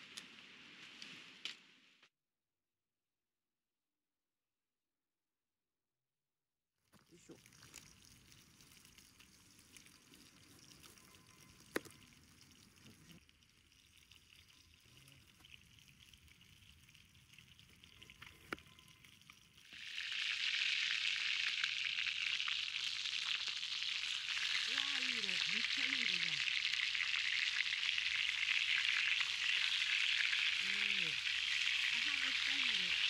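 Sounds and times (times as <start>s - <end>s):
chicken sizzling in frying pan: 19.6s - 33.0s.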